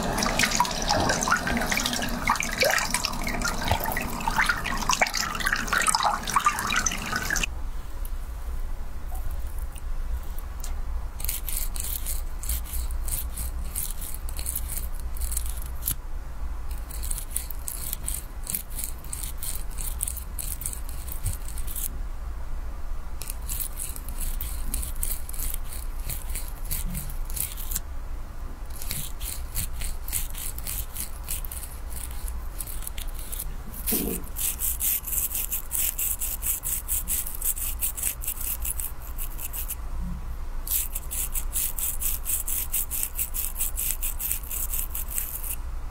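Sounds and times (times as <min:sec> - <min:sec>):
steady low hum: 0:00.0 - 0:11.2
comb scratching hair and scalp: 0:11.2 - 0:16.0, 0:16.7 - 0:21.9, 0:23.2 - 0:27.8, 0:28.7 - 0:39.8, 0:40.7 - 0:45.6.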